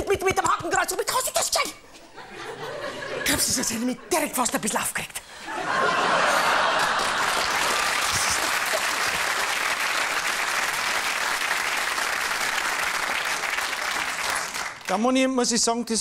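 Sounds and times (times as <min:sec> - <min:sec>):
audience applauding: 0:06.2 - 0:15.0.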